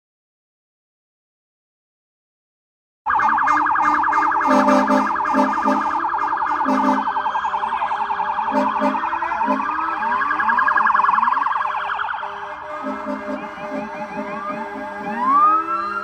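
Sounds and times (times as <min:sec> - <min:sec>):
emergency sirens yelping and wailing: 0:03.1 - 0:16.0
low horn blasts: 0:03.9 - 0:07.3, 0:08.4 - 0:09.8, 0:12.1 - 0:15.7.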